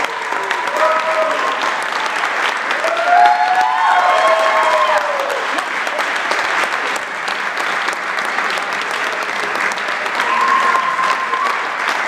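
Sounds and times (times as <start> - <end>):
crowd applauding: 0.0 - 12.0.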